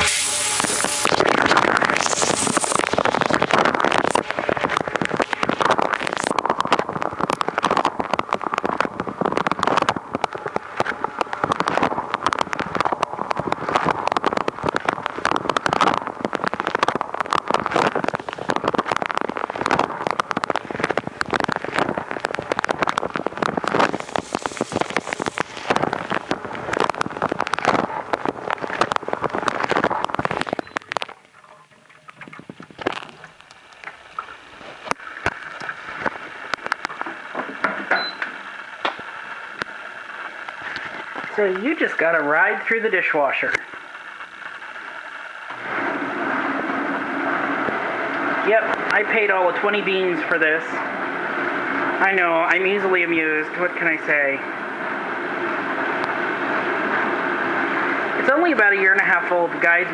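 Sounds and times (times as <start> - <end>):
dishwasher water jets spraying: 0.0 - 6.3, 23.7 - 26.2.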